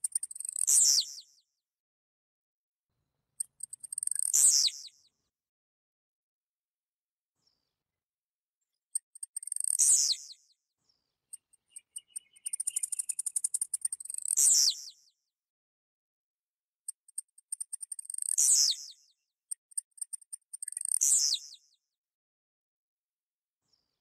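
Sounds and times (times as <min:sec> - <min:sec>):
bird singing buzzy song: 0:00.0 - 0:01.5, 0:03.4 - 0:05.2, 0:08.9 - 0:15.3, 0:16.9 - 0:21.9.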